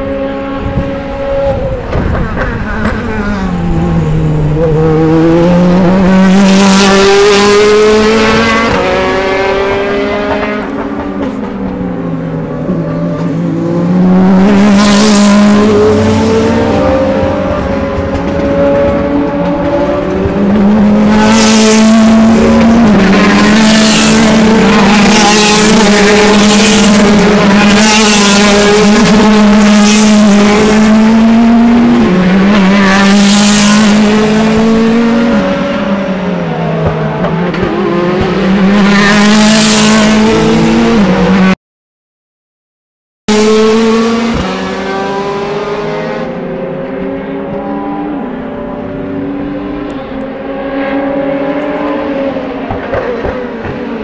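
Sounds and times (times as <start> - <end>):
racing cars passing at full throttle: 0.0 - 41.6, 43.3 - 54.0.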